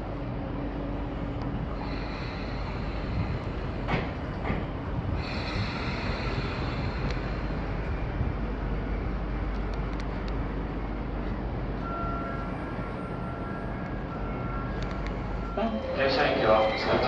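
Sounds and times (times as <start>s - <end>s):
train wheels rumbling: 0.0s - 17.0s.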